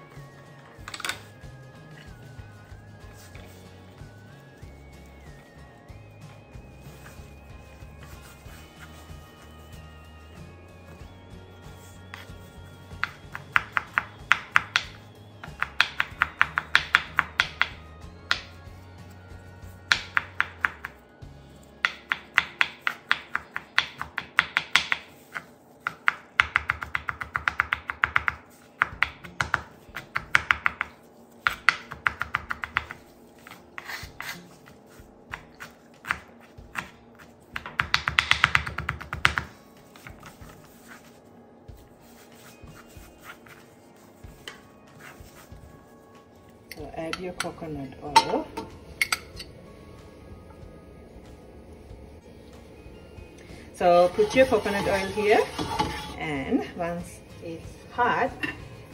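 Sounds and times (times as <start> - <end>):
background music: 0.0 - 58.9
knife chopping on cutting board: 13.0 - 18.6, 21.8 - 41.2.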